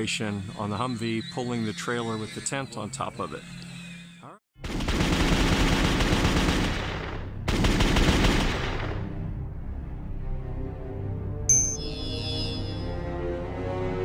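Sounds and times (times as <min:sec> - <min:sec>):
automatic gunfire: 0:04.6 - 0:09.0.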